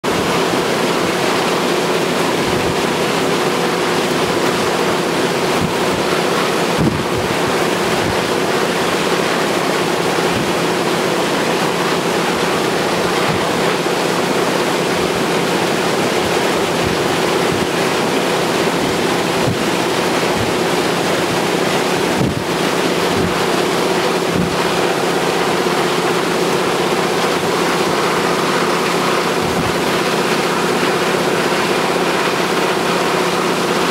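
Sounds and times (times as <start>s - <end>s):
wind noise on microphone: 5.5s - 8.5s, 18.8s - 25.0s, 29.4s - 29.9s.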